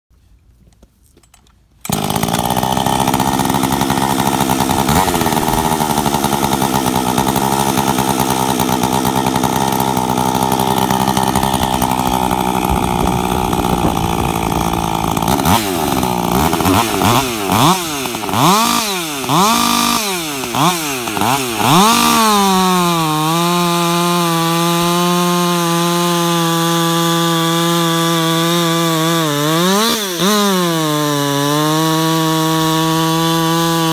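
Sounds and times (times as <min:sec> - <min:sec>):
chainsaw cutting wood: 0:01.8 - 0:33.9
chainsaw revving: 0:01.8 - 0:33.9.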